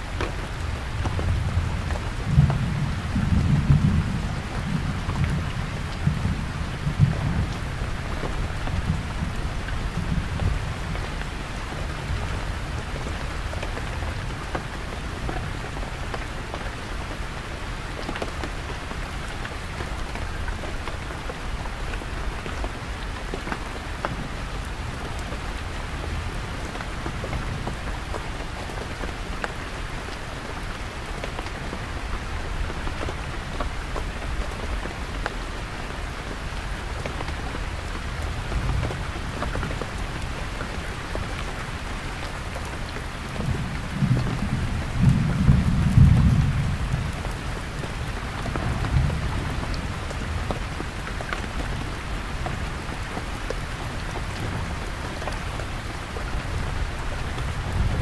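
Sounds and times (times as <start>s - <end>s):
heavy rain on a canvas tent: 0.0s - 58.0s
thunder rumbling: 43.3s - 50.8s.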